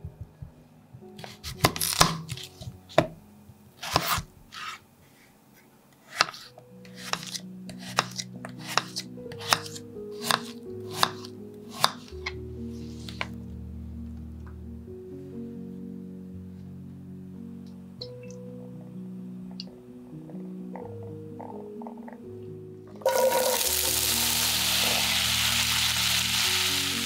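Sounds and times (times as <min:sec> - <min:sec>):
knife chopping potatoes on wooden board: 0:01.2 - 0:03.1, 0:03.8 - 0:04.3, 0:06.1 - 0:12.2.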